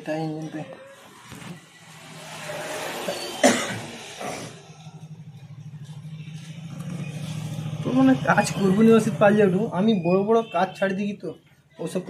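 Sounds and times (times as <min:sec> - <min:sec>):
person coughing: 0:03.4 - 0:04.6
engine running with pulsing beat: 0:04.2 - 0:09.7.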